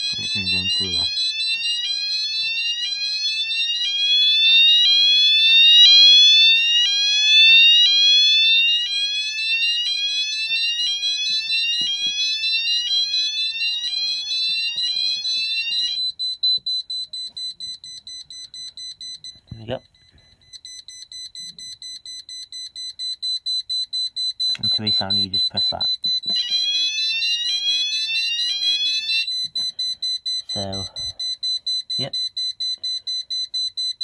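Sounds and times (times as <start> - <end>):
fire alarm rising sweep: 0.0 - 19.3, 20.4 - 34.0
rapid high-pitched buzzer beeping: 20.0 - 34.0.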